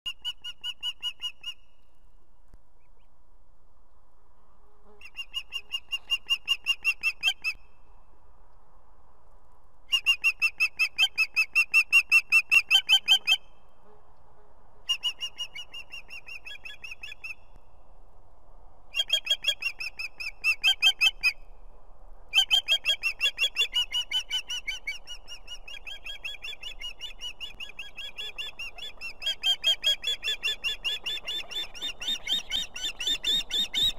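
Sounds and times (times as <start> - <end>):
osprey whistled calls: 5.0 - 7.6, 9.9 - 13.6, 14.9 - 17.4, 18.9 - 21.4, 22.3 - 33.9.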